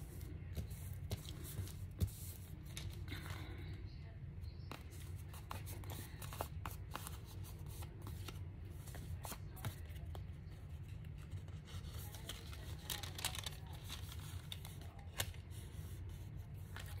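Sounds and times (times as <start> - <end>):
paper rustling and crinkling: 0.1 - 3.6, 4.7 - 17.0
light paper crackles: 4.7 - 17.0.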